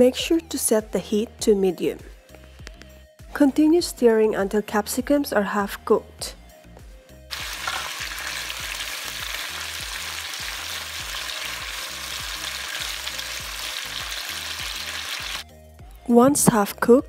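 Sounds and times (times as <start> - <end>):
tongs turning food in pan: 7.3 - 15.3
peppers sizzling in a frying pan: 7.3 - 15.4.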